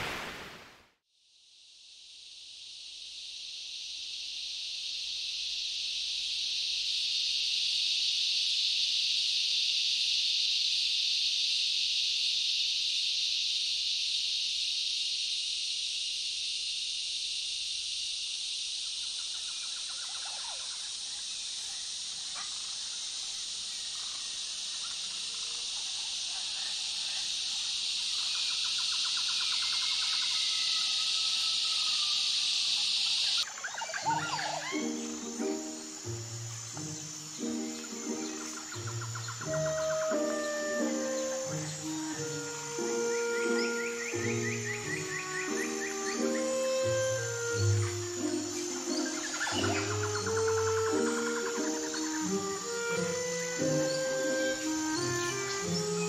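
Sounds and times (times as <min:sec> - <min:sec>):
insect chorus shrilling: 0:01.7 - 0:56.0
faint chirps and trills: 0:28.0 - 0:56.0.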